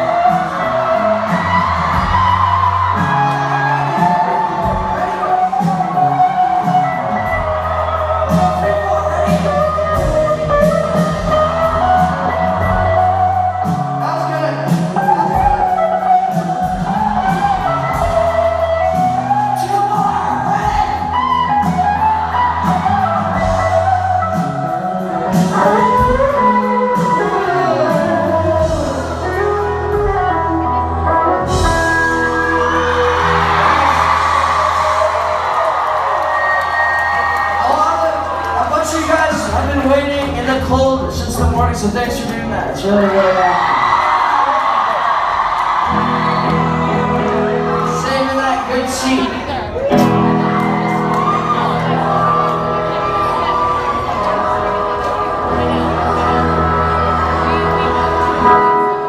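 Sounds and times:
person singing lead vocal: 0.0s - 35.4s, 51.6s - 59.0s
live rock band playing: 0.0s - 59.0s.

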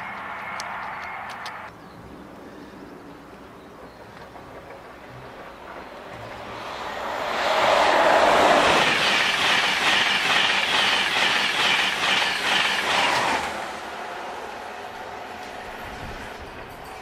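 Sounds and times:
regular beat of train wheelsets: 0.0s - 1.7s, 3.7s - 13.8s, 14.4s - 17.0s
train wheels rushing on rail: 3.7s - 17.0s.

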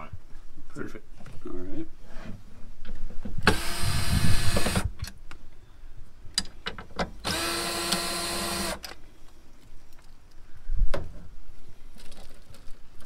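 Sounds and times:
cordless drill whining: 3.5s - 4.9s, 7.2s - 8.9s.

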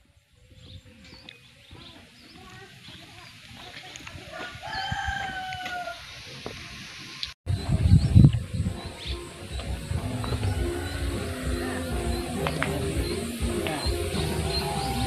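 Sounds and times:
rooster crowing: 4.3s - 6.1s, 10.2s - 12.9s.

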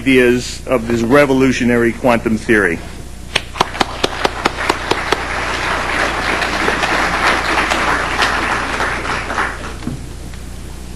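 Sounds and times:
audience applauding: 3.5s - 9.8s.

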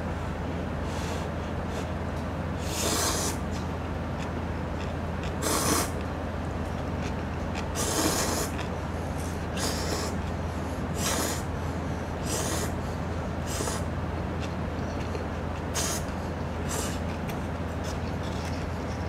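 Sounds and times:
person slurping noodles: 2.6s - 3.4s, 5.2s - 6.0s, 7.6s - 8.6s, 9.3s - 10.2s, 10.9s - 11.5s, 12.2s - 12.8s, 13.5s - 13.9s, 16.7s - 17.1s.

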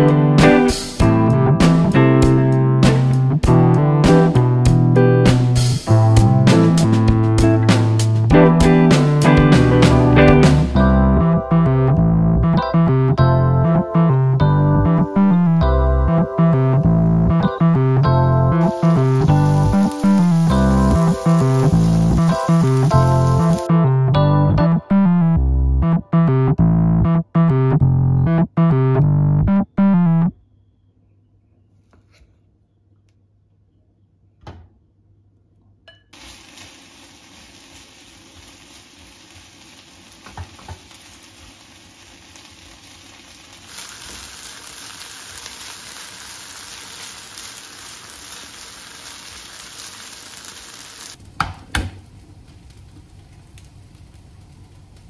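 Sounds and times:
piano background music: 0.0s - 30.3s
rice sizzling in a frying pan: 18.6s - 23.7s, 36.1s - 55.0s.

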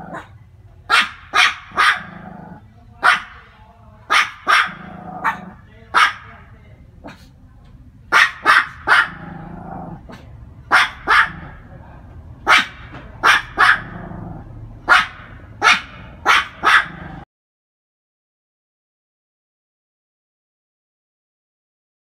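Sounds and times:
small dog barking: 0.0s - 3.5s, 4.1s - 6.3s, 8.1s - 11.6s, 12.4s - 17.2s.

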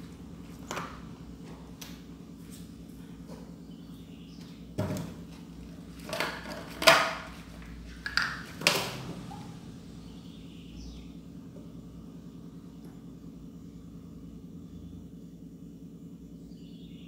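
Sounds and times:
steady low hum: 0.0s - 17.0s
plastic bottle knocks and crinkles: 4.8s - 5.2s.

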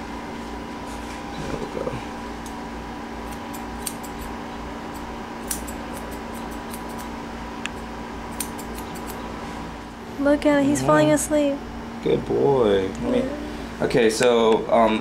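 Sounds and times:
steady low hum: 0.0s - 15.0s
shears snipping hair: 3.2s - 7.1s, 7.7s - 9.2s.

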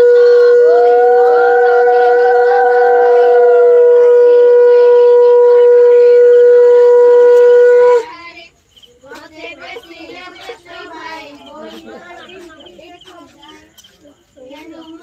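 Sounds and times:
conch shells blown: 0.0s - 8.1s
murmuring voices: 0.0s - 15.0s.

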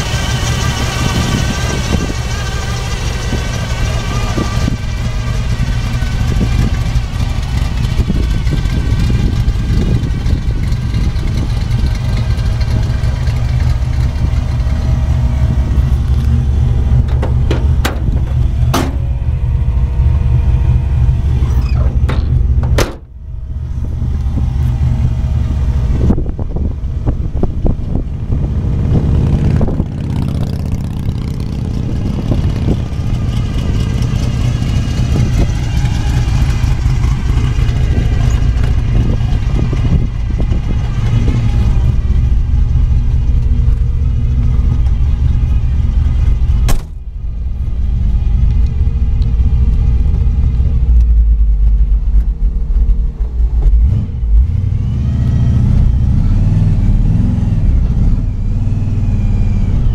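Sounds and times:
car driving off: 0.0s - 59.9s
car engine exhaust rumble: 0.0s - 59.9s
sharp thump: 17.0s - 19.3s, 21.4s - 23.2s, 46.6s - 47.1s.

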